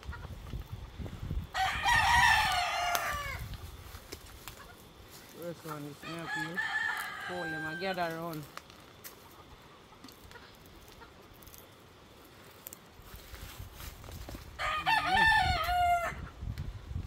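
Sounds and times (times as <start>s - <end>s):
rooster crowing: 1.5s - 3.5s, 6.0s - 8.3s, 14.6s - 16.3s.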